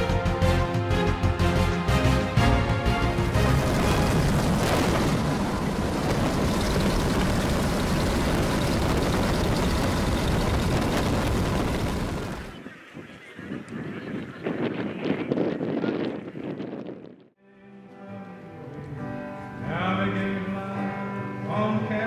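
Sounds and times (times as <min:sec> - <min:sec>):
aircraft engines rumbling: 0:03.0 - 0:16.6
rushing air: 0:03.3 - 0:12.5.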